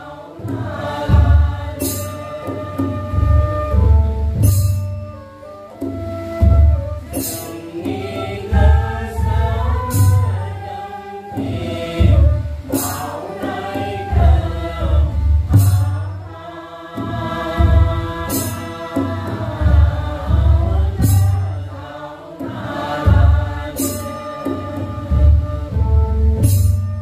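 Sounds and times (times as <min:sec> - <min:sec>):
group chanting: 0:00.0 - 0:02.9, 0:07.5 - 0:25.2
low drum beat: 0:17.1 - 0:18.4.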